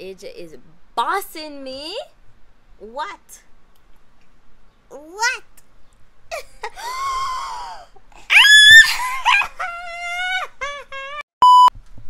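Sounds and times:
toddler squealing and crying: 7.1 - 11.2
short electronic beep: 11.4 - 11.7.

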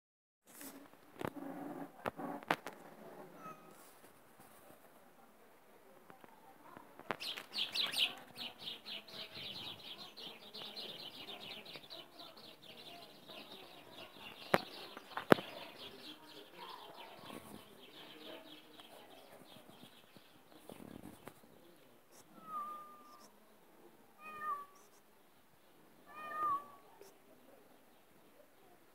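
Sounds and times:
small birds twittering: 7.1 - 23.4.

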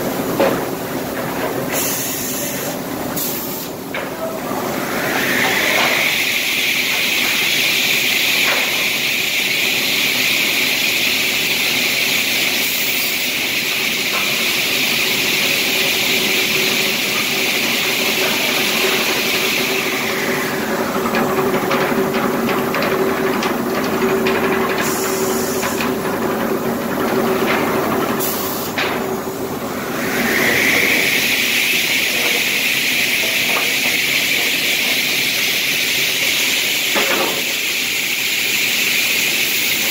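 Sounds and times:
boards clattering on conveyors: 20.7 - 29.2, 32.0 - 37.6
circular saw blades whining: 29.7 - 35.8.

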